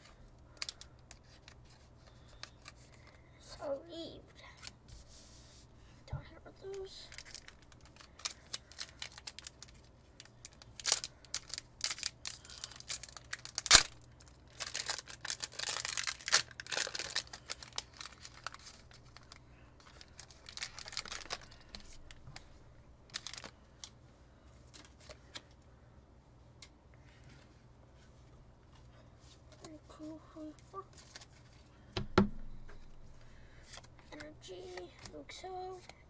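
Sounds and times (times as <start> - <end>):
foil wrapper crinkling and tearing: 0.5 - 3.1, 6.7 - 22.5, 23.1 - 24.0.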